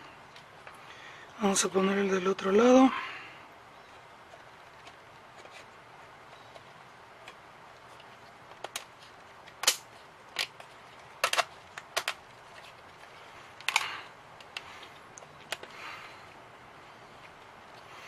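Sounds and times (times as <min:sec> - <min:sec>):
wooden pieces clicking and knocking: 0:08.0 - 0:12.8, 0:13.6 - 0:15.8.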